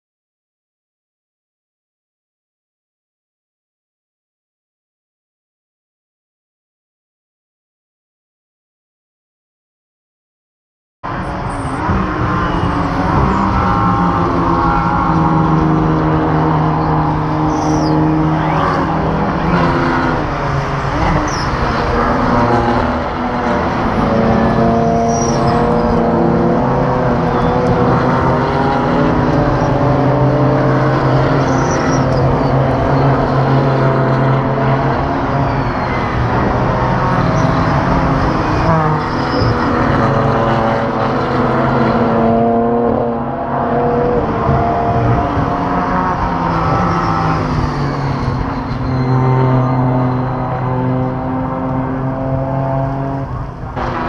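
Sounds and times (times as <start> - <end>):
race car engines at speed: 11.0 - 54.0.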